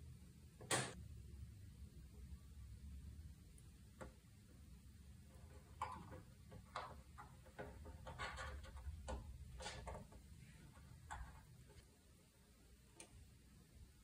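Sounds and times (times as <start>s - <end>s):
low room hum: 0.0s - 14.0s
fingers tapping plastic parts: 5.4s - 11.8s.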